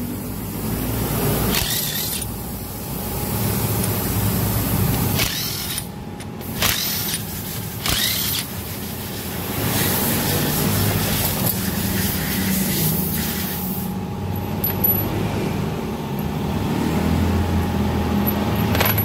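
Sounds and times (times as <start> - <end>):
electric driver spinning bolts: 1.3 - 2.4, 3.8 - 13.1.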